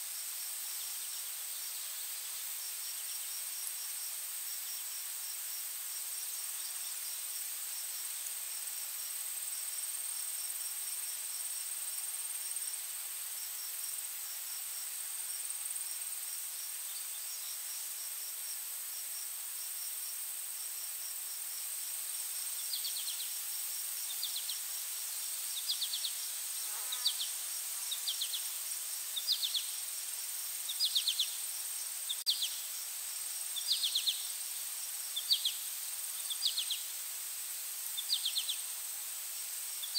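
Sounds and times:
high insect drone: 0.1s - 39.9s
small bird chirping: 29.1s - 29.7s, 30.7s - 31.4s, 32.0s - 32.6s, 33.6s - 34.3s, 35.1s - 35.6s, 36.2s - 36.9s, 38.0s - 38.6s.

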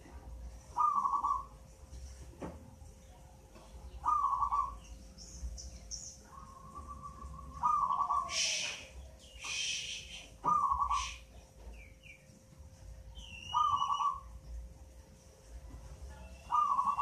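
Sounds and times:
faint steady hum: 0.0s - 17.0s
dove cooing: 0.7s - 1.5s, 4.0s - 4.8s, 6.3s - 8.8s, 9.4s - 11.2s, 13.5s - 14.3s, 16.5s - 17.0s
short hissing bursts: 8.3s - 10.3s.

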